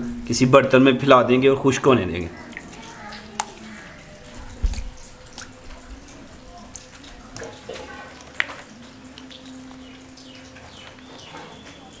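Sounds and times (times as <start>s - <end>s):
wet potato slices patting on tray: 2.7s - 9.5s.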